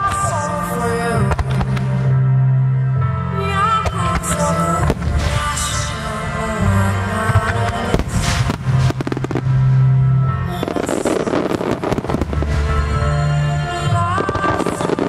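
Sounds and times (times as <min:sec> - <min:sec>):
loud music: 0:00.0 - 0:15.0
fireworks bursting and crackling: 0:03.9 - 0:13.1, 0:13.9 - 0:15.0.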